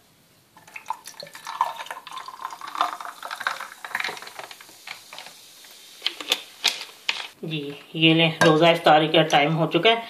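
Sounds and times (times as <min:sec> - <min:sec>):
fizzy water pouring over ice: 0:00.6 - 0:05.5.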